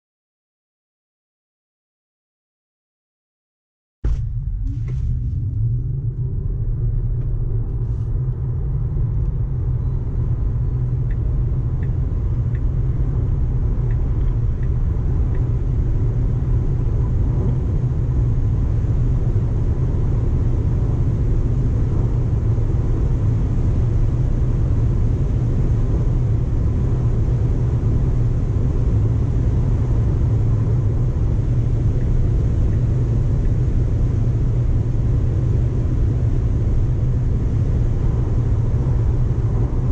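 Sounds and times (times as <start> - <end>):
car cabin road and wind rumble: 4.1 - 39.9.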